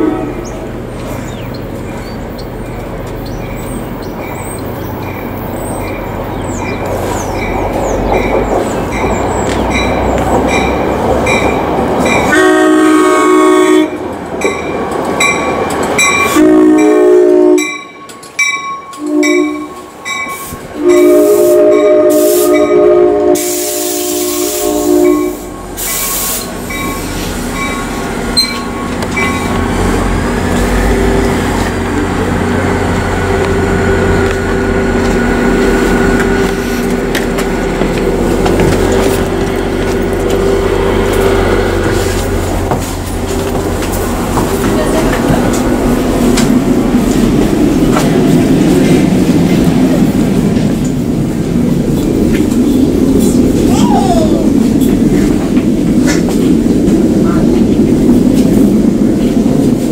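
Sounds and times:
train horn blasts: 0.0 - 0.5, 12.2 - 14.0, 16.2 - 18.0, 18.9 - 26.5
train hum and rumble: 0.0 - 59.9
air hiss: 20.4 - 22.5, 23.4 - 26.7.

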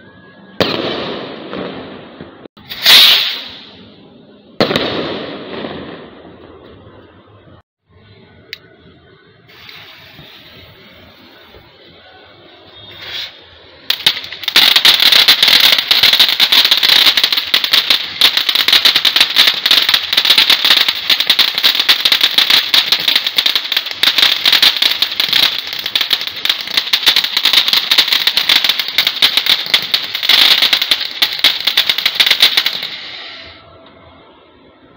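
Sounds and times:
fountain firework crackling hiss: 2.6 - 3.8, 9.5 - 33.7.

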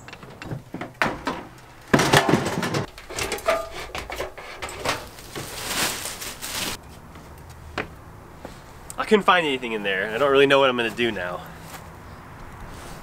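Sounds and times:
knocks and clatter of stored things: 0.0 - 6.8
bags rustling: 2.4 - 6.8.

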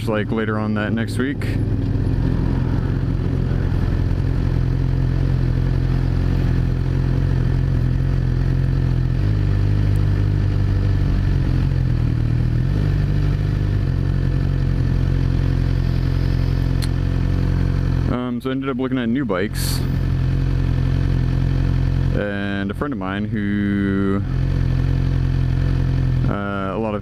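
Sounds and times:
motorcycle engine idling: 0.0 - 27.0.

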